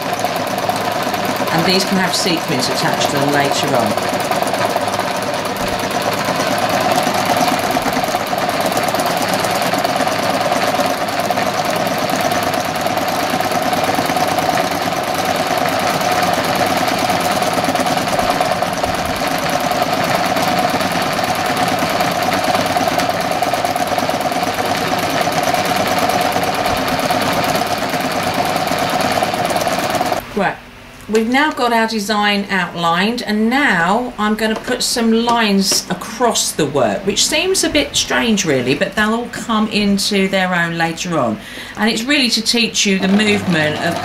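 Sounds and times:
sewing machine running: 0.0 - 30.3, 41.4 - 44.0.

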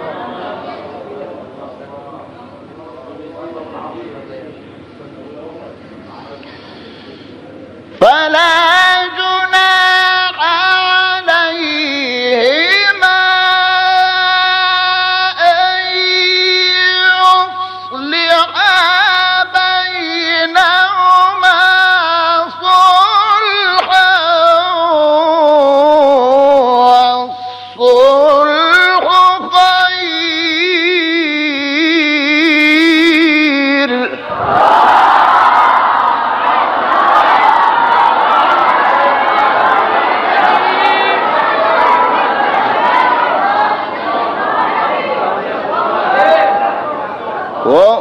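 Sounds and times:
person chanting melodically: 8.0 - 34.6.

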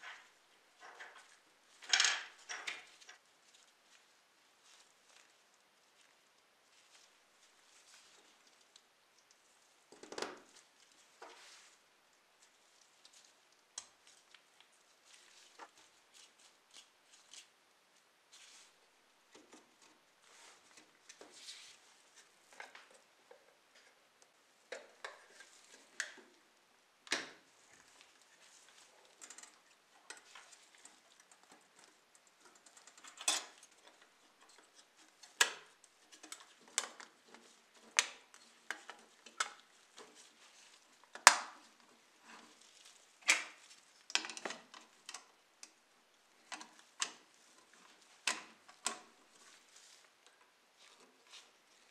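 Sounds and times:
small parts clicking and tapping: 0.8 - 3.2, 29.0 - 40.3.

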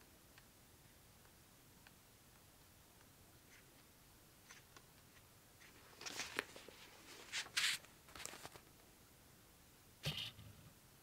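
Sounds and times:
book pages rustling: 3.5 - 8.8.

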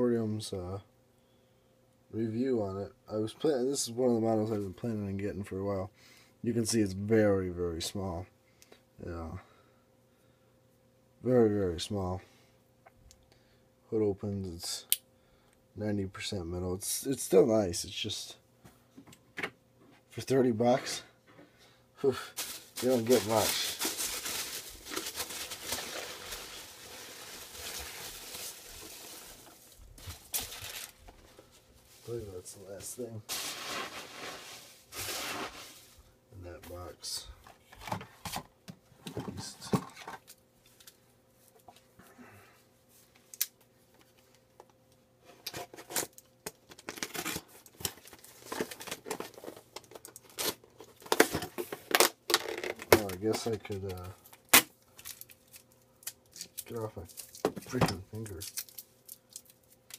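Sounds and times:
packing peanuts rustling: 22.1 - 36.1, 45.8 - 59.9.

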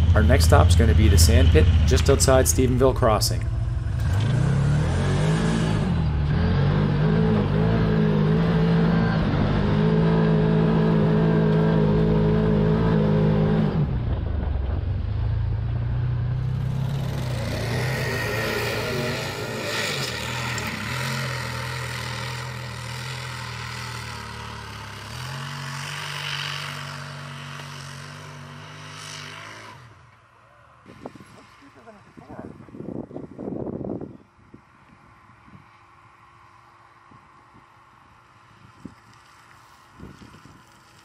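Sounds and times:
utility vehicle engine running: 0.0 - 29.6.

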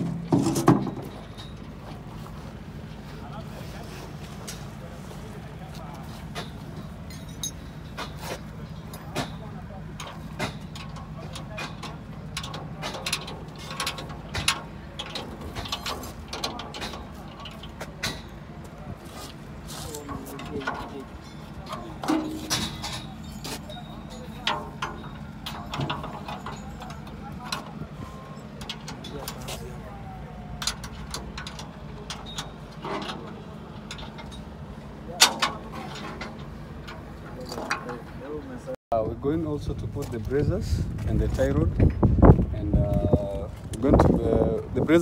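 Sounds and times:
clinks and knocks: 0.0 - 2.1, 6.3 - 18.8, 19.4 - 38.4
metal clicks and clanks: 0.0 - 2.1, 5.9 - 38.4.

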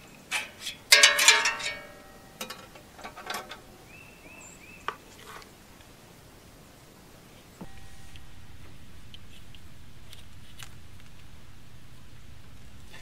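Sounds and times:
metallic rattling clatter: 0.9 - 3.7.

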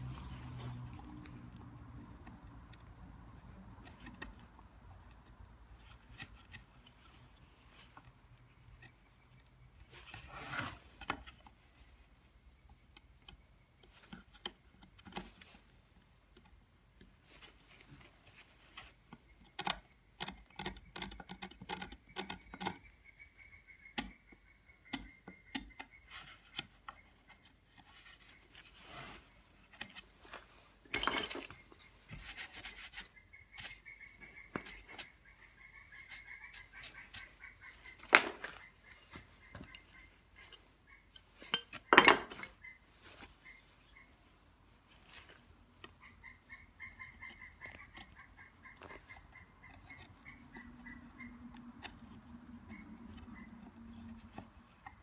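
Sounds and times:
carving tool scraping: 3.6 - 10.9, 25.1 - 30.3, 31.3 - 42.5, 45.8 - 55.0.

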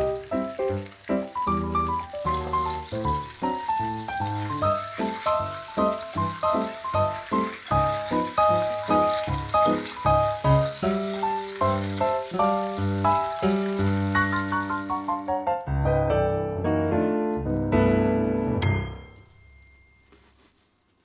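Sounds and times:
sandwich sizzling in frying pan: 0.0 - 15.4
background piano music: 0.0 - 20.6.

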